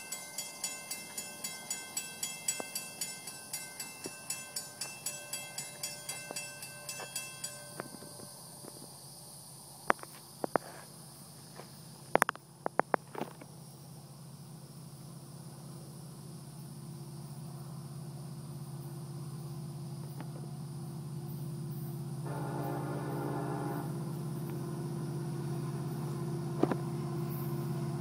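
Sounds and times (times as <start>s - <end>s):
crossing warning bell ringing: 0.0s - 8.9s, 22.3s - 24.4s
faint insect buzz: 22.3s - 24.6s.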